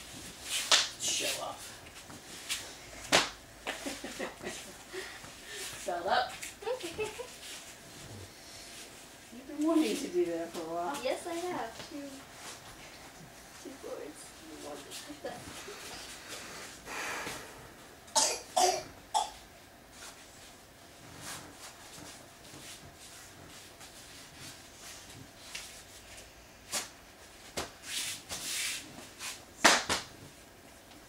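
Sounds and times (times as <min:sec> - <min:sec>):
soft rustling: 0:03.8 - 0:16.8, 0:19.9 - 0:29.4
person coughing: 0:18.2 - 0:19.4.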